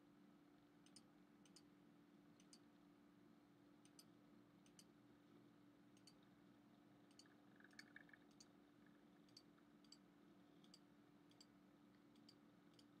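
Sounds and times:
steady low hum: 0.0s - 13.0s
faint computer mouse clicks: 0.8s - 1.7s, 2.4s - 2.7s, 3.8s - 4.9s, 5.9s - 6.2s, 7.1s - 8.5s, 9.2s - 13.0s.

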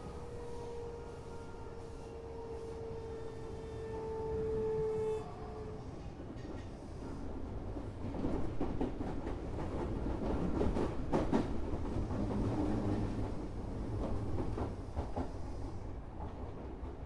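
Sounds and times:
train wheels rumbling on rail: 0.0s - 17.0s
rail-joint clicks: 6.4s - 7.2s.

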